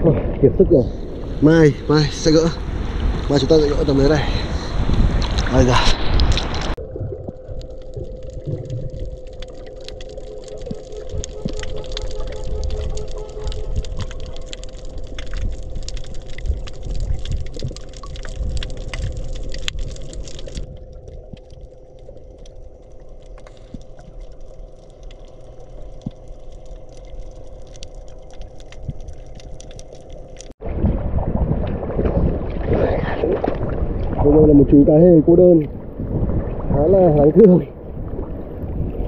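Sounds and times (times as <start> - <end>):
wind buffeting microphone: 0.0 - 9.1, 30.6 - 39.0
muffled underwater rumble: 0.0 - 39.0
waves splashing: 0.8 - 6.8
faint underwater clicks: 4.9 - 30.6.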